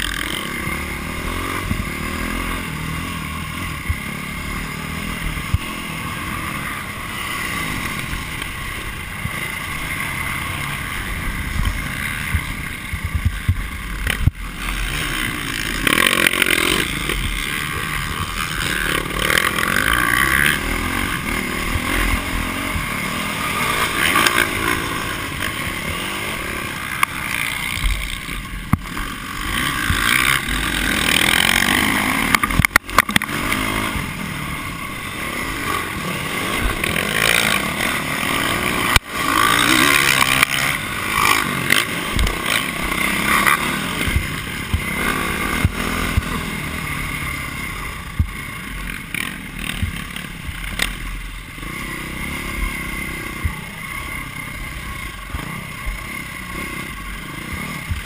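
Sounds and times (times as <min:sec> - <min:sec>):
dirt bike engine revving: 0:00.0 - 0:58.0
wind noise on microphone: 0:11.4 - 0:14.4.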